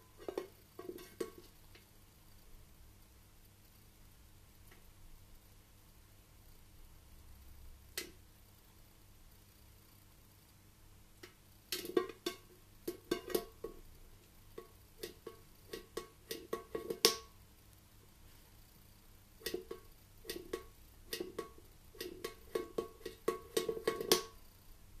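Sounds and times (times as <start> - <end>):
parrot beak tapping metal can: 11.2 - 13.8, 14.5 - 17.3, 19.4 - 24.4.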